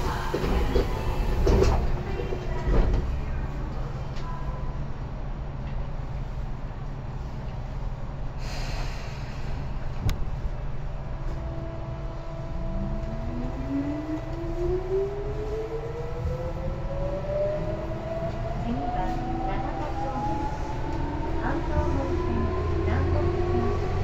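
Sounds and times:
train running gear rumble: 0.0 - 24.0
air hiss: 8.4 - 9.7.

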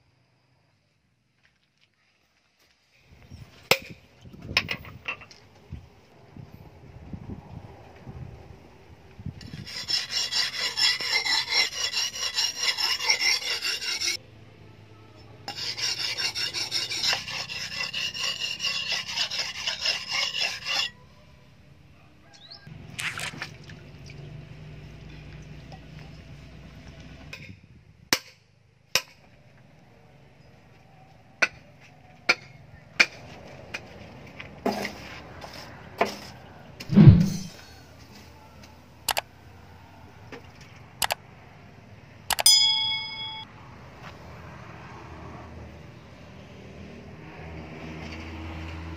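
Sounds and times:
blade scraping on sharpening stone: 9.4 - 14.2, 15.5 - 21.0
sharp clicks: 39.1 - 39.3, 42.3 - 42.5.

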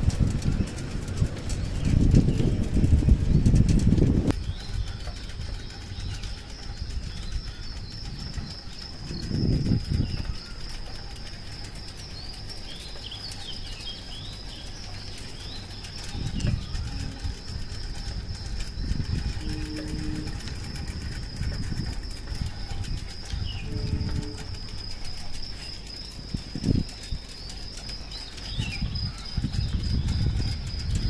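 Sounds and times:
low rumble: 0.0 - 12.3
birds chirping: 0.0 - 31.0.

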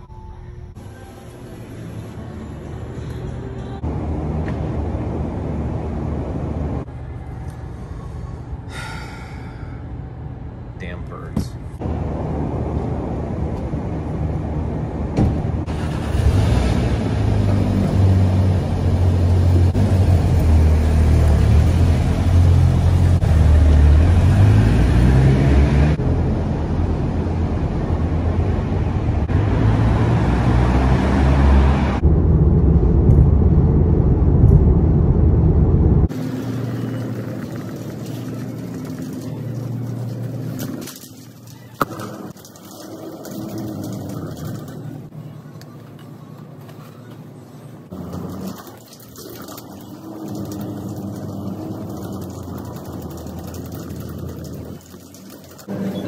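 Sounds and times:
quiet shop ambience: 0.0 - 15.0, 44.6 - 48.3.

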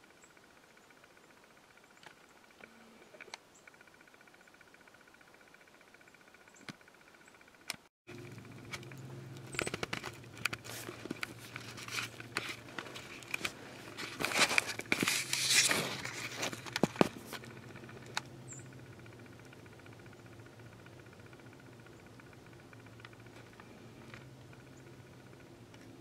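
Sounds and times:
scattered clicks: 0.0 - 26.0
steady low hum: 0.0 - 26.0
rustling and crinkling: 8.2 - 18.3.

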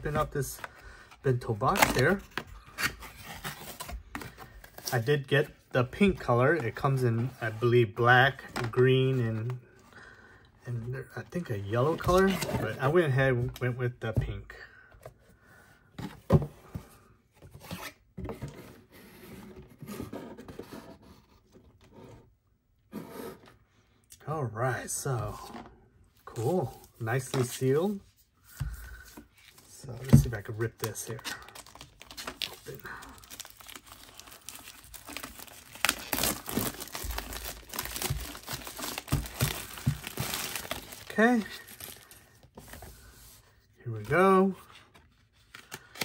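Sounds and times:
packaging rubbing and scraping: 30.9 - 43.3
plastic wrap tearing and crinkling: 31.3 - 42.1.

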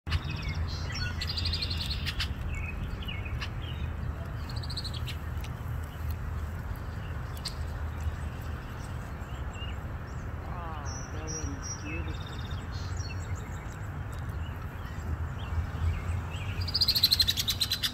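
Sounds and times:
sharp bird ticks: 0.1 - 9.8, 11.6 - 15.6, 16.4 - 17.9
wind rumbling on microphone: 0.2 - 17.9
blackbird buzzy trills: 16.5 - 17.9.

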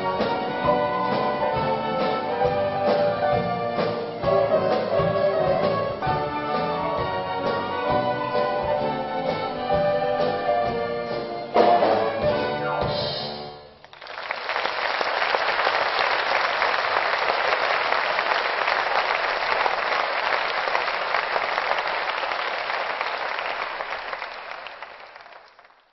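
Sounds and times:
orchestra with drum kit: 0.0 - 13.8
audience applauding: 13.8 - 25.9.

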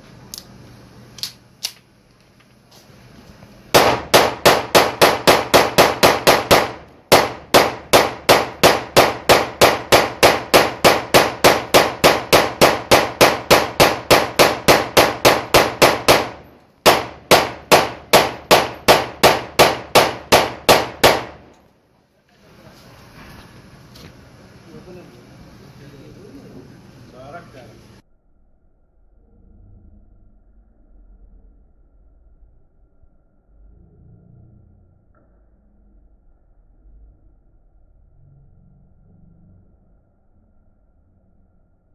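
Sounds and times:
pistol firing rapidly: 3.7 - 21.5.

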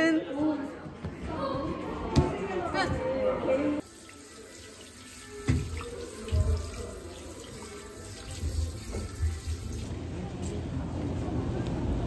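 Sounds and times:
shower water spraying: 3.8 - 9.9.

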